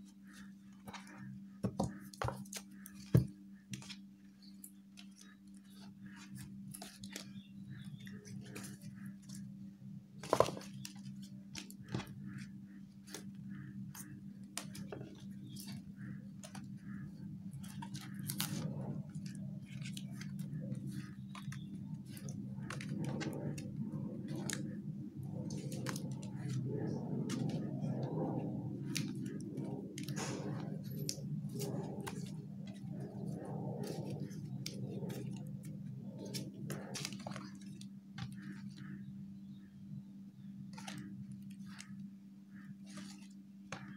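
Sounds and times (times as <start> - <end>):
low hum: 0.0 - 43.9
paper rustling and sliding: 16.4 - 24.6, 25.5 - 29.4.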